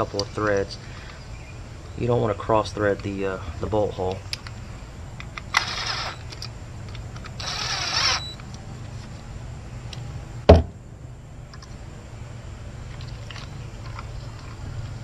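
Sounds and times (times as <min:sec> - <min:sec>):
low steady hum: 0:00.0 - 0:15.0
cordless ratchet whirring: 0:05.4 - 0:06.5, 0:07.2 - 0:08.5
sharp knock: 0:10.5 - 0:10.8.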